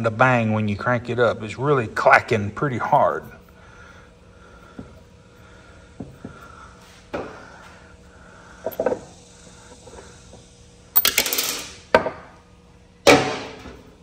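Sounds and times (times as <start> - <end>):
metal parts clinking and clattering: 11.0 - 11.8.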